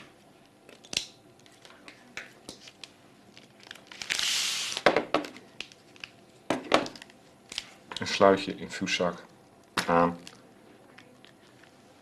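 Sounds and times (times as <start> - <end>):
plastic bag crinkling: 2.6 - 4.9.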